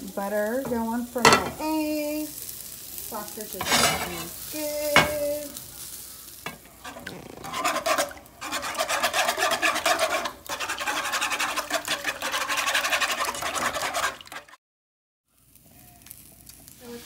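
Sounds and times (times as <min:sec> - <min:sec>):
utensil scraping nonstick pan: 0:03.2 - 0:14.6.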